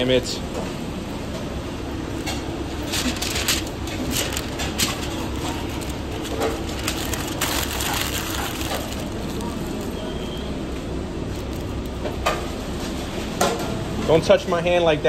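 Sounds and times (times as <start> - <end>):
steady low rumble: 0.4 - 12.8
paper wrapper crinkling: 2.8 - 10.4, 11.3 - 12.3.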